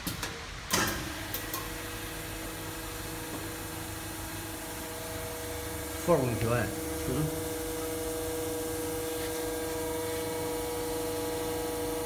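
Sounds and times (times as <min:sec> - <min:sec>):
hydraulic pump motor humming: 0:00.7 - 0:12.0.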